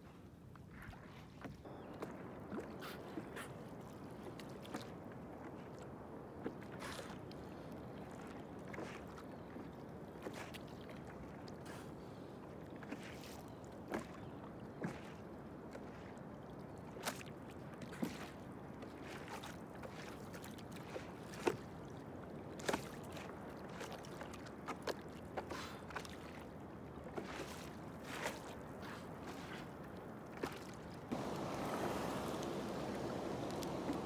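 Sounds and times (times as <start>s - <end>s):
water lapping against boat hull: 0.0s - 34.0s
steady hiss: 31.1s - 34.0s.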